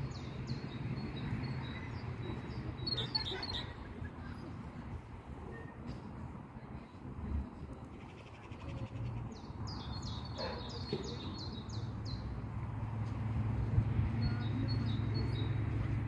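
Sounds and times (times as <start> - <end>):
songbird singing: 0.0 - 4.5, 7.8 - 12.5, 14.0 - 16.0.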